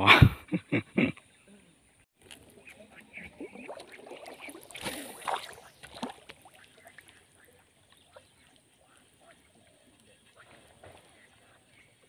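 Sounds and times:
fishing rod cast swish: 4.7s - 6.1s.

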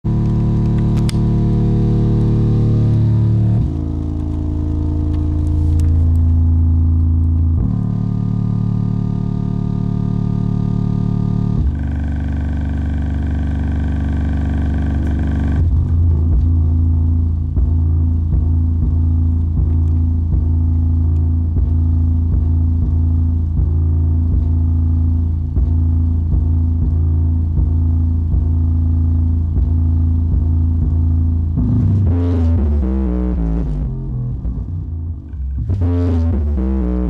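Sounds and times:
deep bass from subwoofer: 0.0s - 37.0s.

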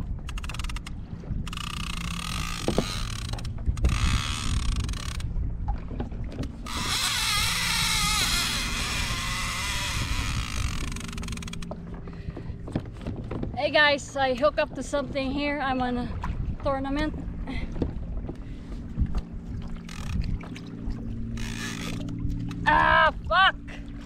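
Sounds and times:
water noise: 0.0s - 24.0s
wind: 0.0s - 24.0s
fishing reel buzzing: 0.3s - 5.3s, 6.6s - 11.7s, 19.8s - 20.4s, 21.3s - 22.5s.

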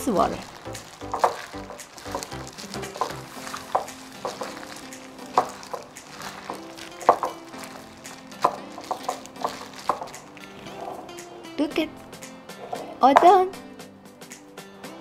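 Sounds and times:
wet batter squelching: 0.0s - 11.1s
soft background music: 0.0s - 15.0s.

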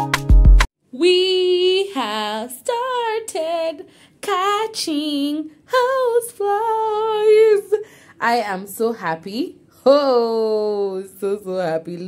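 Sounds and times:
music with heavy bass beat: 0.0s - 0.7s
woman singing wavering phrases: 0.9s - 12.0s.

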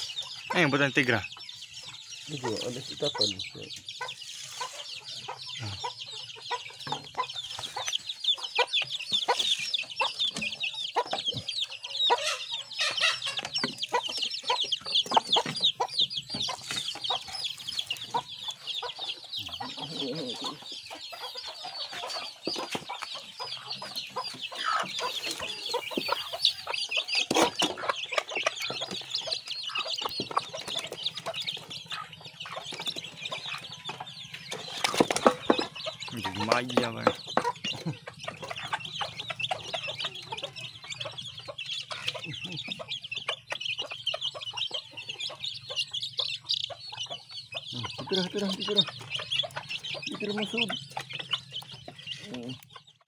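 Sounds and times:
chicks peeping: 0.0s - 53.0s
hen clucking: 0.0s - 53.0s.

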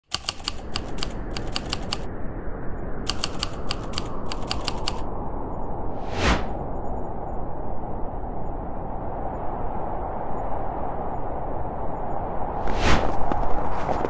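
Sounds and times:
typewriter key strikes: 0.0s - 2.0s, 3.1s - 5.0s
short whoosh: 5.9s - 6.6s, 12.6s - 13.3s.

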